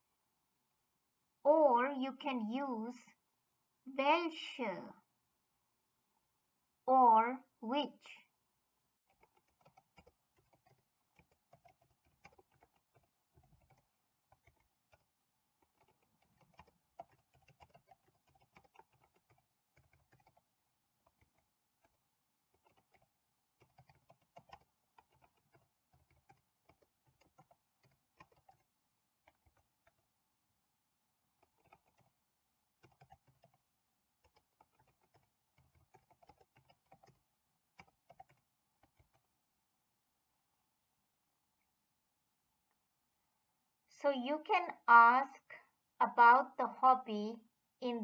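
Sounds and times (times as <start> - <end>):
typing on computer keyboard: 9.0 - 30.1, 31.3 - 32.2, 32.8 - 39.3.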